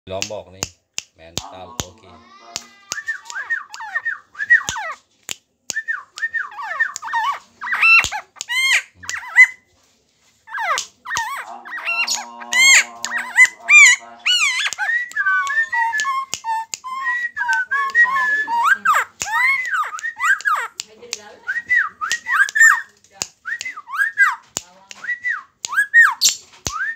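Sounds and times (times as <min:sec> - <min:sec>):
finger snaps: 0:00.2 - 0:03.8, 0:04.6 - 0:07.3, 0:14.5 - 0:18.2, 0:18.8 - 0:26.9
man whistling: 0:02.9 - 0:04.8, 0:12.0 - 0:20.5
bird calling whistled notes: 0:10.5 - 0:20.8, 0:21.5 - 0:22.9, 0:25.0 - 0:26.9.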